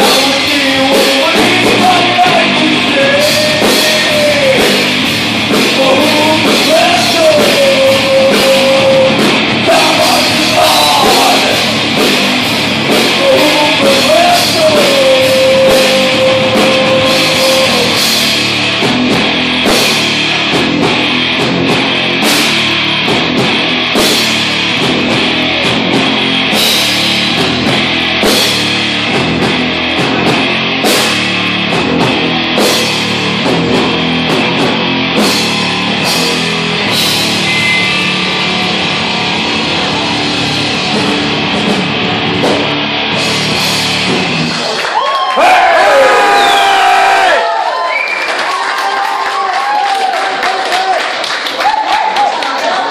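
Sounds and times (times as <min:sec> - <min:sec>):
heavy metal band playing: 0:00.0 - 0:47.7
person singing long notes: 0:05.7 - 0:11.7, 0:13.1 - 0:18.2.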